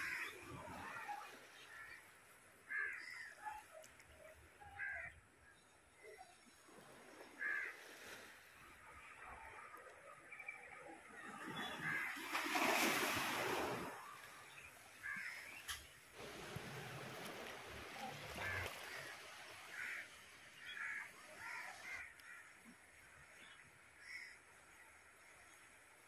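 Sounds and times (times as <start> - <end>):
sea surf on rocks: 0.0 - 1.9, 11.2 - 22.4
rush of water: 0.0 - 26.0
crows cawing: 2.7 - 3.4, 7.4 - 7.8, 15.0 - 15.5, 18.1 - 22.6, 24.0 - 24.4.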